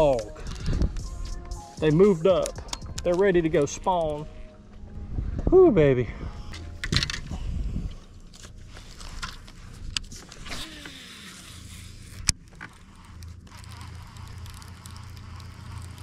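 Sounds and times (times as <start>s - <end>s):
electric trolling motor humming: 7.4s - 16.0s.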